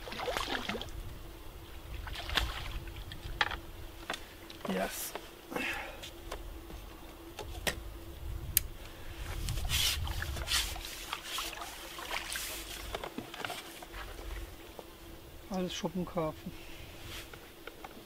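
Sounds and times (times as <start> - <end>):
water splashing and dripping: 0.0 - 0.9, 2.0 - 3.2.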